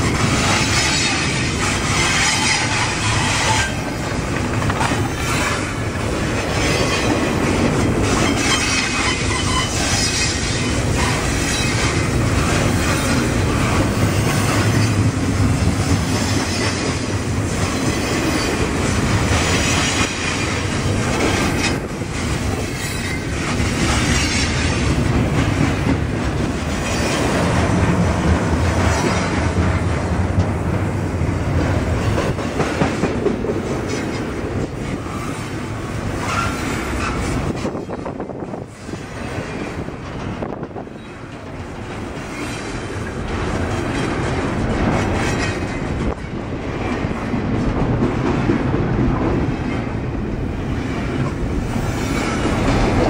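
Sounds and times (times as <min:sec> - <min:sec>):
train wheels rumbling and clattering: 0:00.0 - 0:53.0
wheel squeal: 0:08.2 - 0:11.9.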